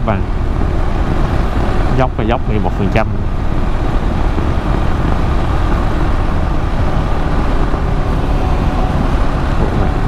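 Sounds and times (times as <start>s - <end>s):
wind and road noise: 0.0s - 10.0s.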